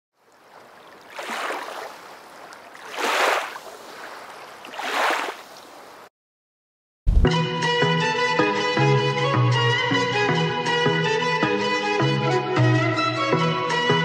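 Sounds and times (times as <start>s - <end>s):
waves washing against stone quay: 1.0s - 5.4s.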